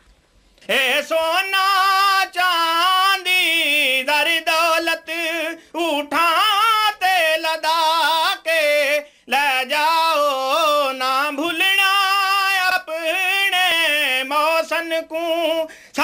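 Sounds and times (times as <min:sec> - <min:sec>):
man singing unaccompanied chant: 0:00.6 - 0:16.0
singer breathing: 0:05.6 - 0:05.8, 0:09.0 - 0:09.3, 0:15.6 - 0:16.0.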